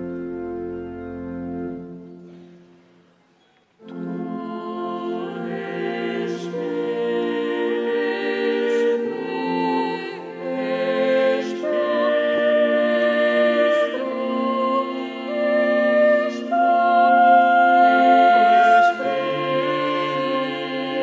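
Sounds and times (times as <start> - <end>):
held instrumental chord: 0.0 - 2.7
choir singing a hymn: 3.8 - 21.0.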